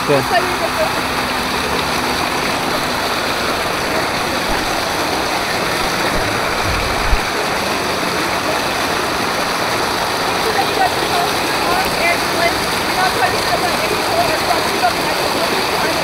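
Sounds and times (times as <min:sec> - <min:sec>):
water rushing along slide: 0:00.0 - 0:16.0
low bump: 0:02.0 - 0:07.7.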